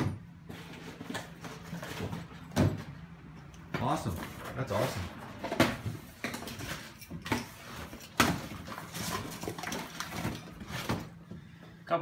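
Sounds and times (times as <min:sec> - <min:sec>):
cardboard rustling and scraping: 0:00.4 - 0:02.5, 0:04.1 - 0:11.2.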